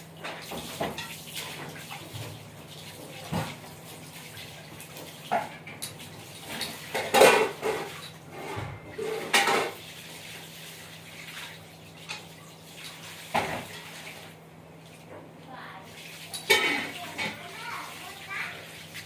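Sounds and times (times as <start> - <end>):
hard objects clattering in a basin: 5.1 - 9.8, 16.2 - 18.6.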